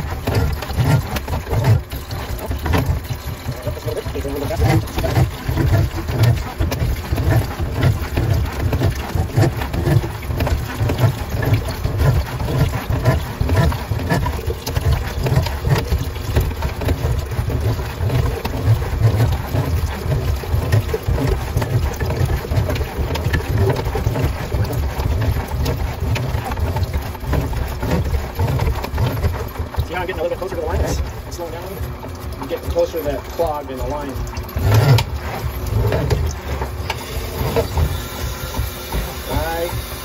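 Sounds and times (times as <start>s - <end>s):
drain-cleaning machine rumbling: 0.0s - 40.0s
water pouring into bucket: 0.0s - 40.0s.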